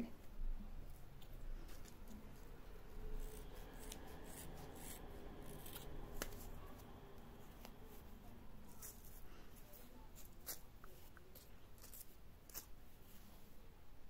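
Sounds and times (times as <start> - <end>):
scissors snipping fabric: 3.2 - 6.8, 10.2 - 12.7.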